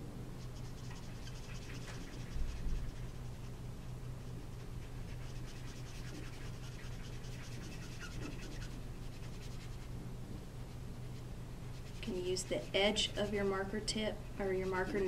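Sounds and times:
steady low hum: 0.0 - 15.0
marker scratching on card: 0.4 - 3.6, 4.5 - 9.9, 11.2 - 13.5, 14.4 - 15.0.

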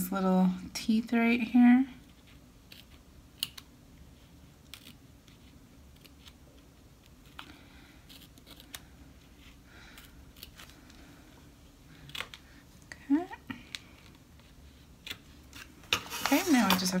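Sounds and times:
scissors snipping vinyl: 4.6 - 8.9.

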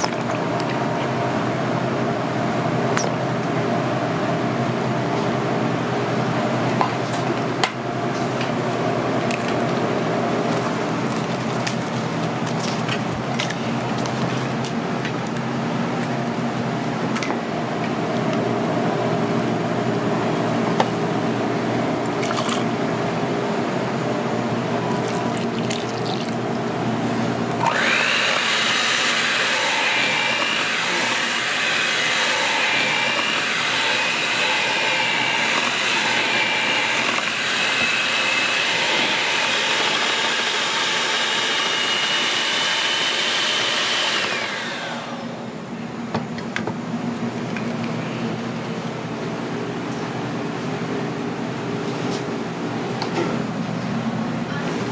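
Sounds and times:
kitchen hum: 0.0 - 54.9
electric hand mixer whining: 24.5 - 26.6, 27.2 - 45.6
liquids pouring into bowl: 24.9 - 26.4.

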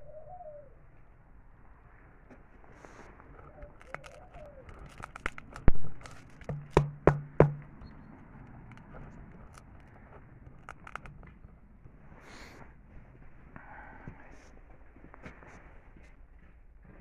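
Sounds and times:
plastic bottle crackling clicks: 3.8 - 7.9, 10.6 - 11.3
bottle knock on wood: 6.5 - 7.8.

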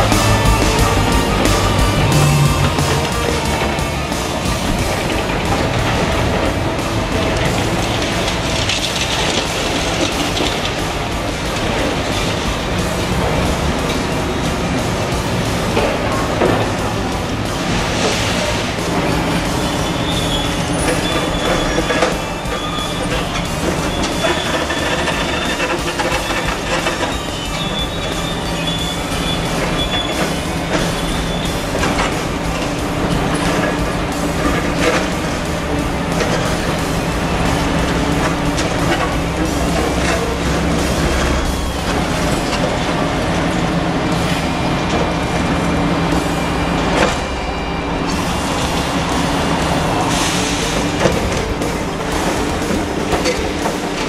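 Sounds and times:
diesel engine running under load: 0.0 - 54.0
high-pitched metal squeals: 0.0 - 54.0.

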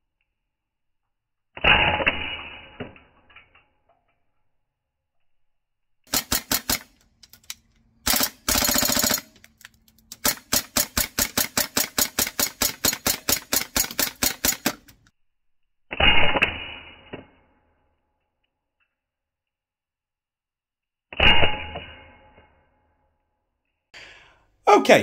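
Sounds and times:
airsoft gun firing: 6.1 - 7.0, 8.0 - 9.3, 10.2 - 14.9.

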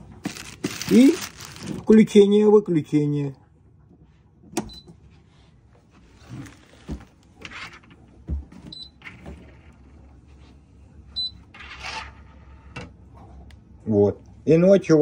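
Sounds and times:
plastic wrap rustling: 0.0 - 2.2, 6.1 - 7.2.

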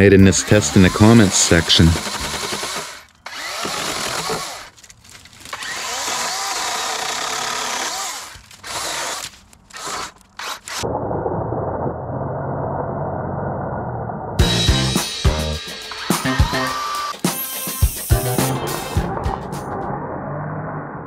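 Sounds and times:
battery chainsaw cutting wood: 0.0 - 10.8, 15.1 - 17.2.

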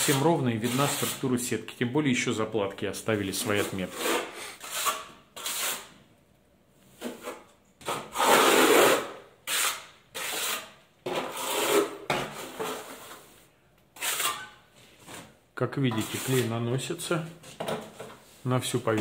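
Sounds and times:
steel trowel scraping: 0.0 - 1.4, 3.3 - 6.0, 7.0 - 14.7, 15.9 - 16.8.

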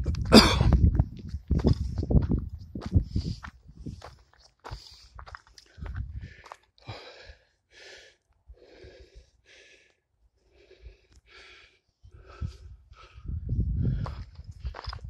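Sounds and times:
footsteps on dirt trail: 0.0 - 7.0, 13.0 - 15.0
heavy breathing: 4.6 - 14.3.

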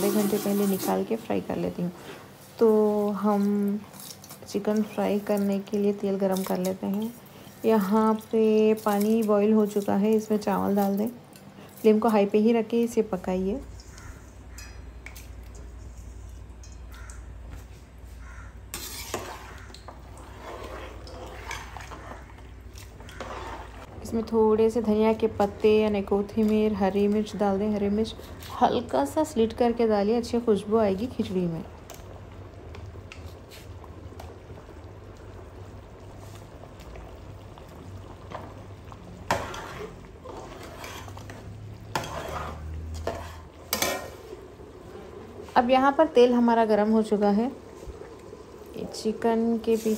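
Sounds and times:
rice and water cooking in pot: 0.0 - 49.9
ladle stirring rice: 13.6 - 24.2, 38.2 - 45.6, 47.7 - 49.9.

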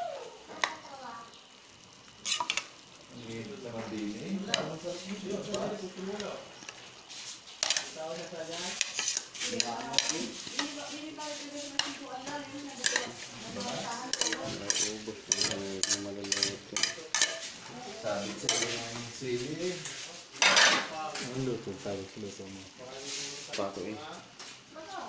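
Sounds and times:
meat sizzling in a pan: 0.0 - 25.0
utensil clinking and scraping: 2.2 - 2.8, 3.7 - 19.1.

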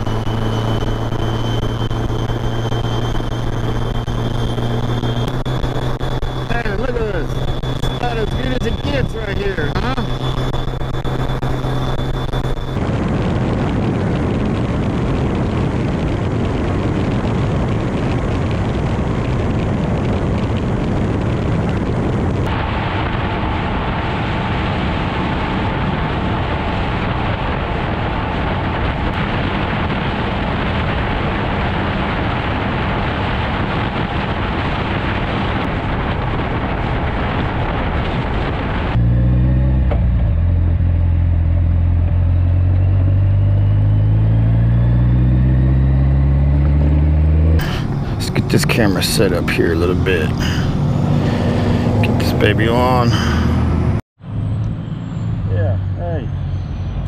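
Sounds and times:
motorcycle engine accelerating: 0.0 - 23.6, 38.8 - 57.0
wind and road rush: 0.0 - 57.0.

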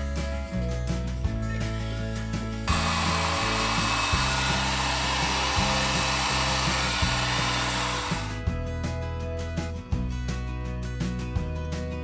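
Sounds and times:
background music with bass: 0.0 - 12.0
hot-air blower hissing: 2.7 - 8.4.

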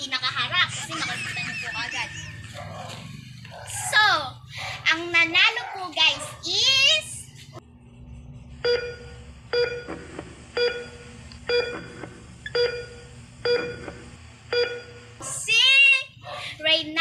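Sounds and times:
child's voice: 3.7 - 7.2, 15.3 - 17.0.

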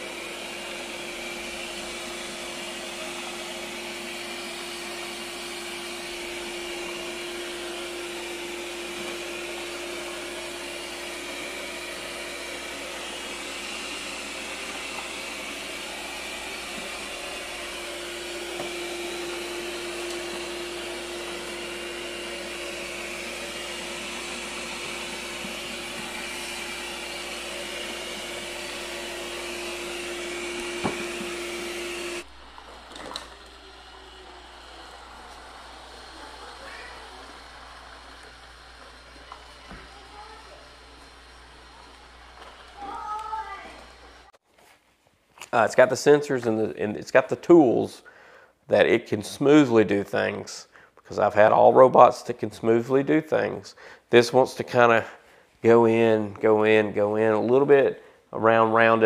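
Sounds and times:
robot vacuum whirring: 0.0 - 44.3.

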